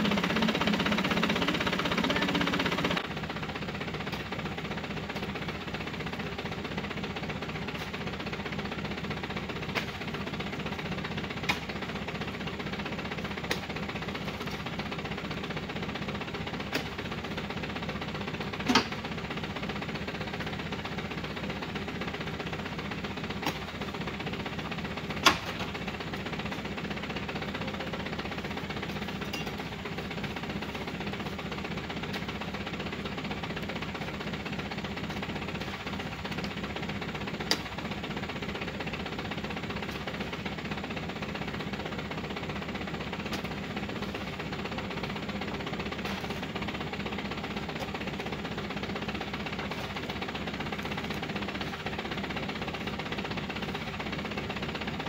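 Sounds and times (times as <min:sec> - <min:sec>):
truck engine idling: 0:00.0 - 0:55.0.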